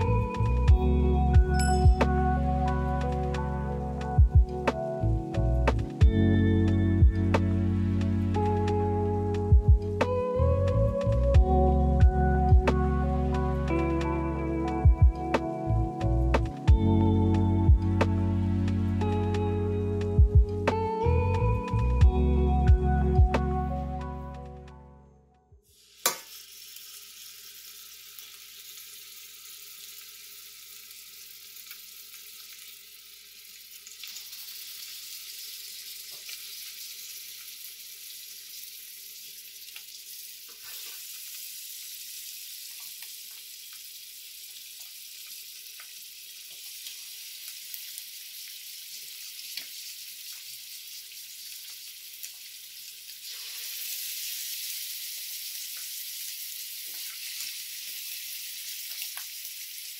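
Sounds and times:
meat sizzling in hot oil: 25.7s - 59.9s.

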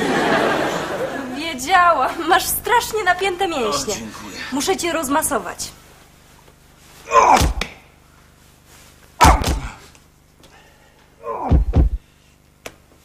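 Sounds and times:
heavy thumps: 7.2s - 7.8s, 9.2s - 9.8s, 11.4s - 12.0s.

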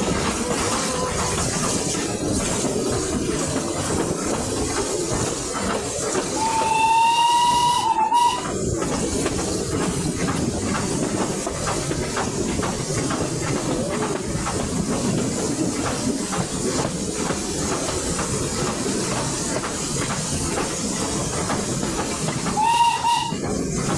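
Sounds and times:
clicking from rails: 0.0s - 23.9s
train running noise and hiss: 0.0s - 23.9s
steam locomotive whistle: 6.4s - 8.5s, 22.5s - 23.4s.

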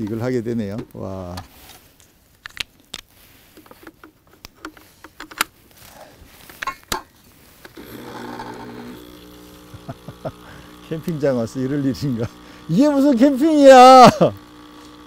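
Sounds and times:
coffee machine pump humming: 7.7s - 15.0s.

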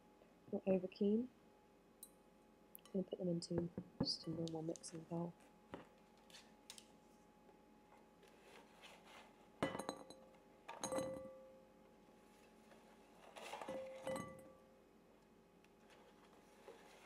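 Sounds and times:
bowl clinking: 9.6s - 11.5s, 13.6s - 14.6s.

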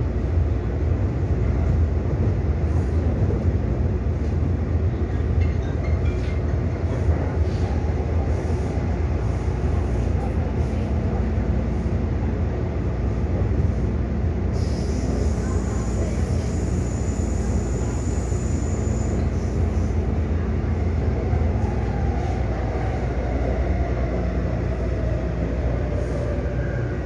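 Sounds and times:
train running noise: 0.0s - 27.0s.

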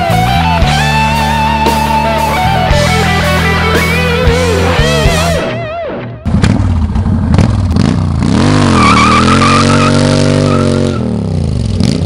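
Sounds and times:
motorcycle engine revving: 0.0s - 12.0s
tyre squealing: 8.4s - 11.1s.

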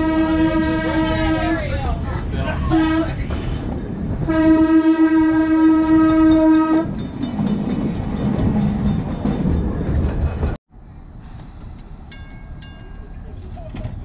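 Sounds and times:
trolley horn blast: 0.0s - 1.7s, 2.7s - 3.4s, 4.2s - 7.1s
wheels rumbling on track: 0.0s - 14.0s.

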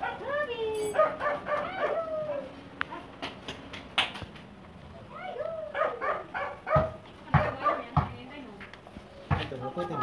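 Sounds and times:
dog yipping and barking: 0.0s - 2.5s, 5.6s - 7.9s.

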